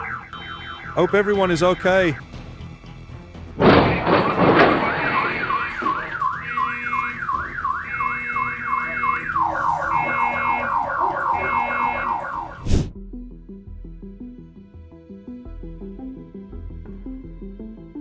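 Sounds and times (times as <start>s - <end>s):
car alarm siren: 0.0s - 2.2s, 3.6s - 12.7s
loud crash: 3.6s - 7.1s.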